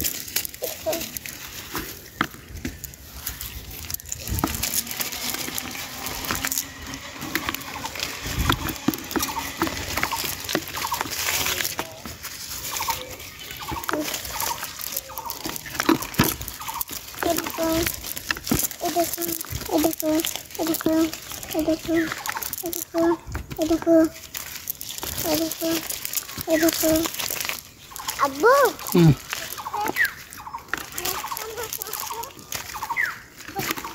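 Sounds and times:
leaves rustling in a net: 0.0 - 33.9
fish slapping in a bucket: 1.2 - 23.6.

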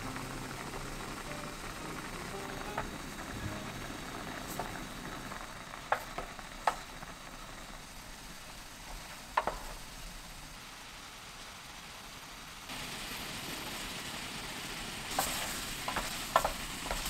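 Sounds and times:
liquid bubbling at a boil: 0.0 - 17.0
wooden spoon knocking pan: 15.2 - 17.0.

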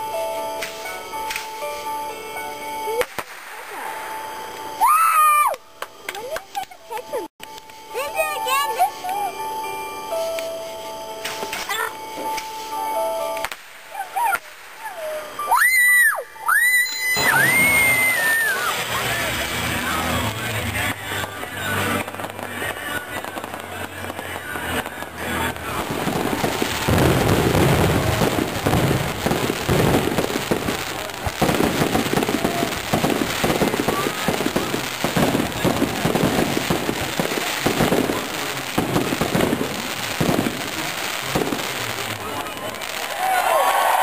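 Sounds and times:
aerial fireworks bursting: 2.9 - 4.9, 16.8 - 44.0.

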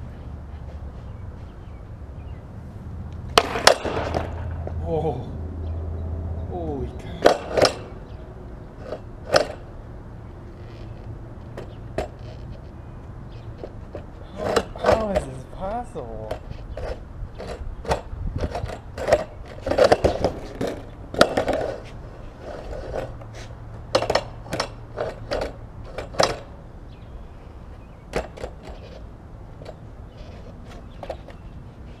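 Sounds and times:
skateboard clacking on wooden beam: 3.3 - 4.8, 7.2 - 8.0.

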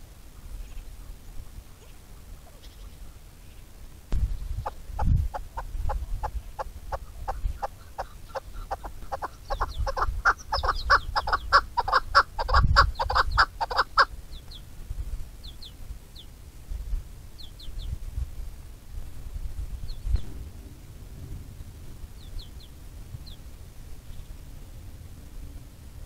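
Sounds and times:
small birds chirping: 0.0 - 16.5, 17.3 - 18.2, 19.6 - 20.5, 22.0 - 24.8
partridge clucking call: 4.6 - 14.1.

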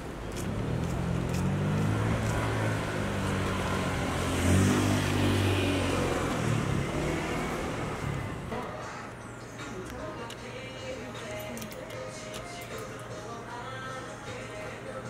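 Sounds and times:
vehicle engine running: 0.0 - 8.6.

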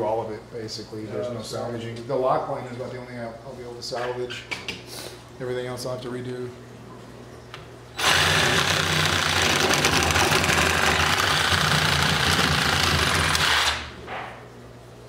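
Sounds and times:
power tool cutting plastic pipe: 8.0 - 14.0.

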